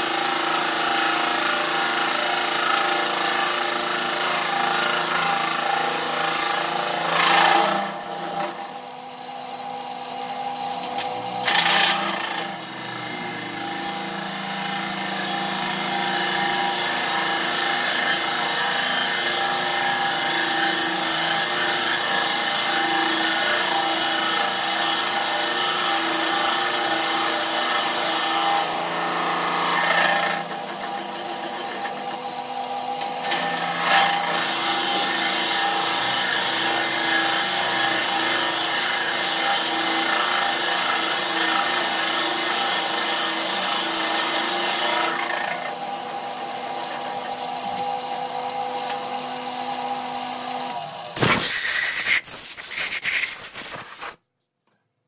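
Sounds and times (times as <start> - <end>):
lathe motor hum: 0.0 - 51.2
drill bit hissing cut in wood: 0.0 - 54.2
rough rush of hand against spinning wood: 51.2 - 54.2.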